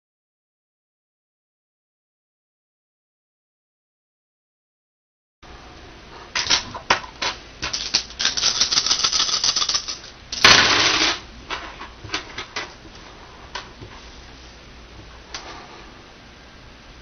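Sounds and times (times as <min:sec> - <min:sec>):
dice rattling in a hand: 0:07.6 - 0:10.1
dice clattering on wooden table: 0:07.6 - 0:11.2.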